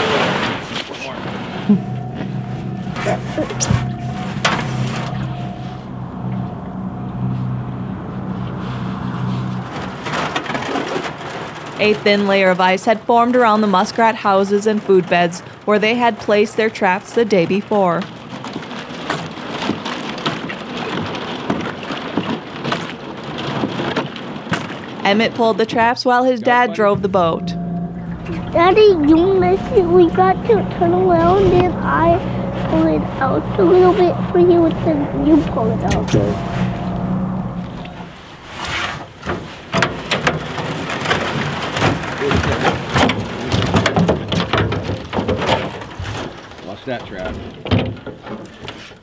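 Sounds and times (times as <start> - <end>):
thin ice crackling against boat: 0.0 - 26.9, 37.8 - 49.0.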